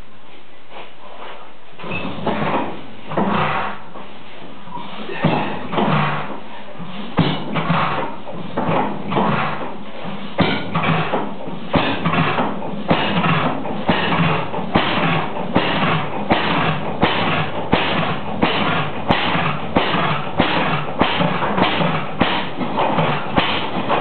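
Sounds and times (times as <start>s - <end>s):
gas engine exhaust pulses: 0.7s - 24.0s
sharp engine knock: 10.4s - 24.0s.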